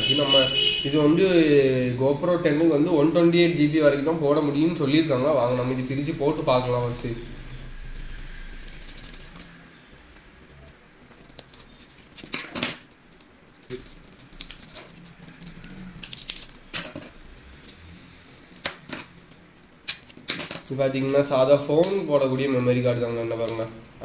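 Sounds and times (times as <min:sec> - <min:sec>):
packaging clicks and crackles: 0:08.7 - 0:24.0
packaging snapping: 0:10.6 - 0:24.0.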